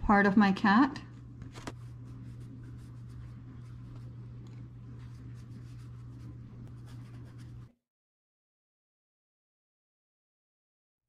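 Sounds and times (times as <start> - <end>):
low electrical hum: 0.0 - 7.7
brush strokes on canvas: 1.7 - 7.7.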